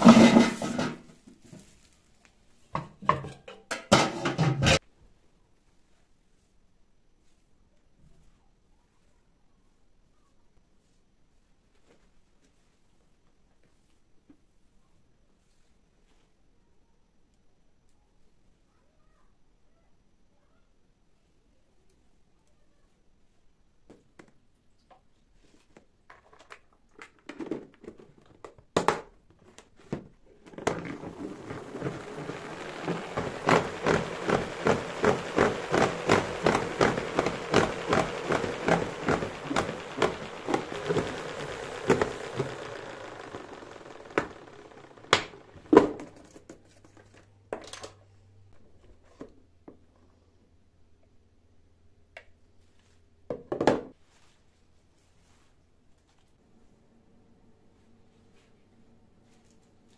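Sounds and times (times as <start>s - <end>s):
spinning basket whirr: 0.0s - 0.9s, 30.6s - 46.3s.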